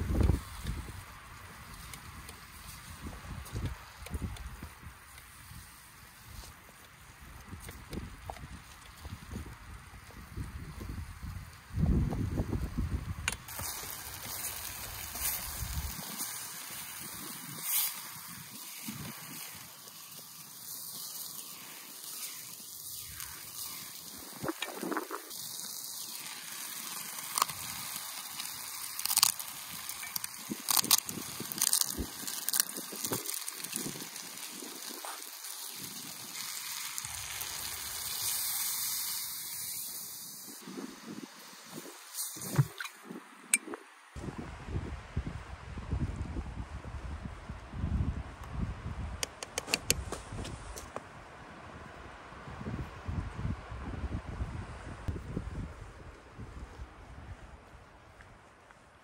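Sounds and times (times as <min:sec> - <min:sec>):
vegetables sizzling in pot: 0:00.0 - 0:43.5
wind buffeting microphone: 0:07.2 - 0:19.6, 0:40.6 - 0:50.8, 0:52.4 - 0:58.0
sharp clicks: 0:49.2 - 0:50.0.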